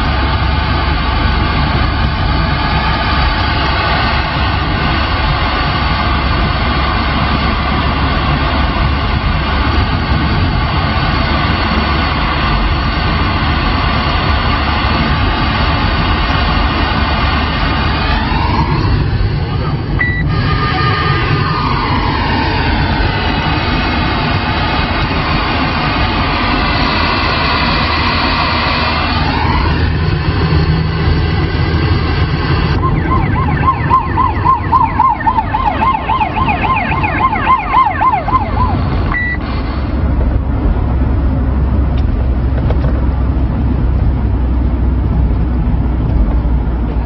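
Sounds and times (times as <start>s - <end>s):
vehicle engine rumble: 0.0s - 47.0s
siren wailing and warbling: 17.5s - 28.2s, 28.9s - 30.8s, 31.5s - 39.5s
short beep: 20.0s - 20.4s, 39.1s - 39.4s.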